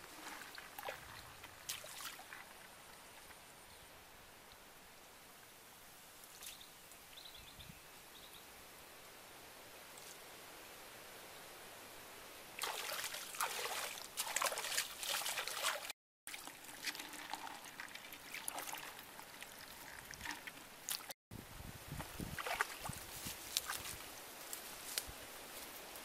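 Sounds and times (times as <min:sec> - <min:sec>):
water splashing and trickling: 0:00.0 - 0:03.8, 0:12.6 - 0:21.2, 0:21.9 - 0:24.0.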